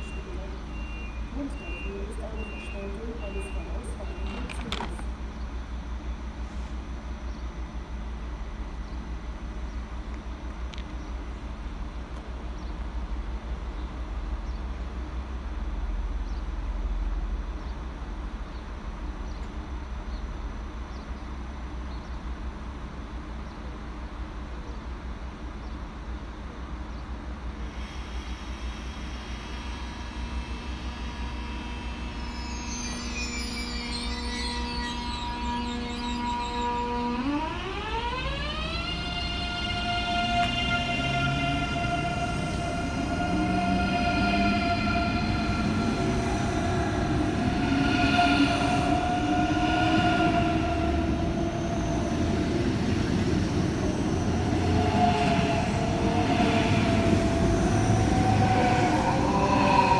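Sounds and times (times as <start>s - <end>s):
train equipment humming: 0.0s - 59.9s
train hiss: 27.4s - 36.0s, 39.7s - 59.9s
high whining tones: 28.1s - 59.9s.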